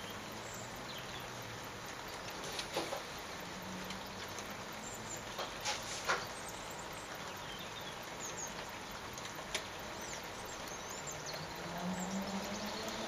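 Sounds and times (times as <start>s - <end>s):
rain pattering: 0.0s - 13.0s
small birds chirping: 0.0s - 13.0s
low drone: 10.4s - 13.0s.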